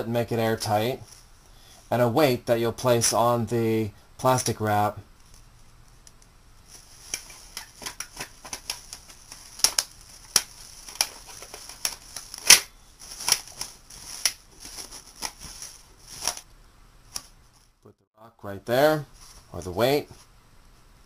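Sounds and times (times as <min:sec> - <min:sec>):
plastic wrap crinkling: 0:05.2 - 0:16.5.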